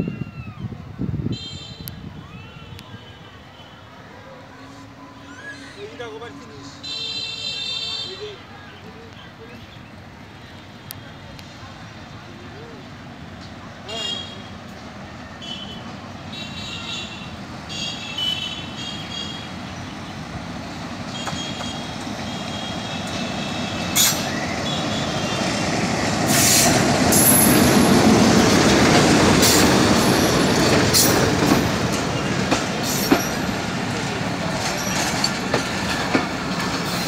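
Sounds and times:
train coaches rumbling past: 0.0 - 37.0
diesel locomotive engine: 0.1 - 37.0
train wheels clanking: 26.2 - 37.0.

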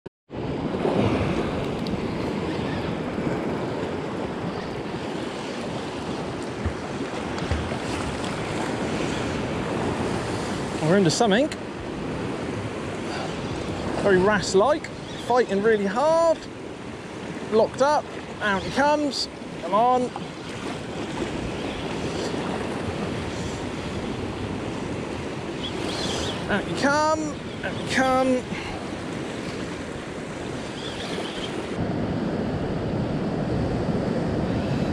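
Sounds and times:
wind buffeting microphone: 0.3 - 11.0
wind on microphone: 0.3 - 11.0, 16.4 - 34.9
waves breaking against rocks: 0.7 - 11.2, 15.3 - 31.8.

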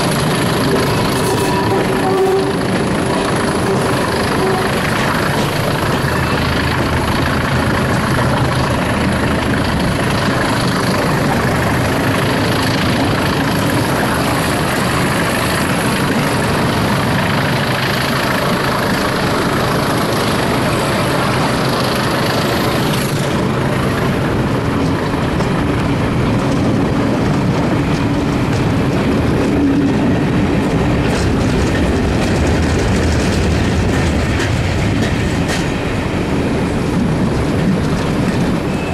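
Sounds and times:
diesel locomotives working hard: 0.0 - 38.9
train wheels clattering over rails: 0.0 - 38.9.

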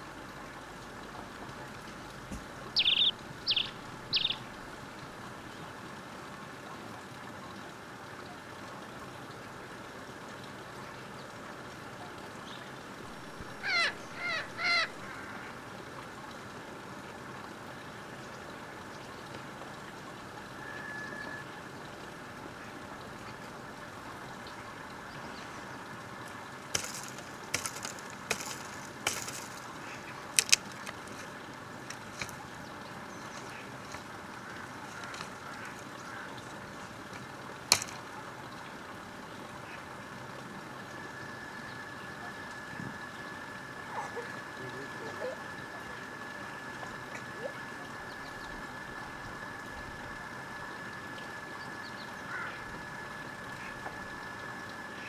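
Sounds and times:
background hiss: 0.0 - 6.6, 10.6 - 55.0
faint rising calls: 2.6 - 4.6, 13.0 - 15.6
faint high whine: 20.3 - 22.7, 40.5 - 55.0
dry branches cracking: 26.7 - 32.4, 34.8 - 35.9, 37.1 - 38.0.

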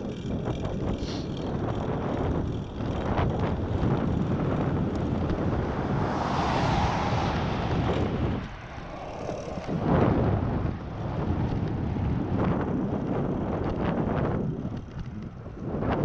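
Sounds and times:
wind buffeting microphone: 0.0 - 16.0
car passing by: 3.4 - 12.6.

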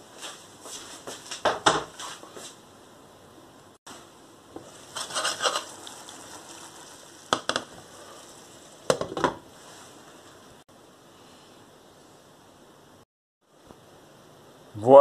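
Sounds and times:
pan sizzling: 3.9 - 10.6.

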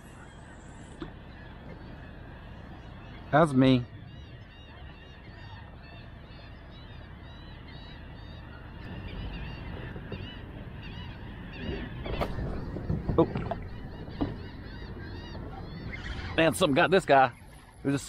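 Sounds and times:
distant birds honking: 0.0 - 18.0
low rumble: 8.8 - 16.4.

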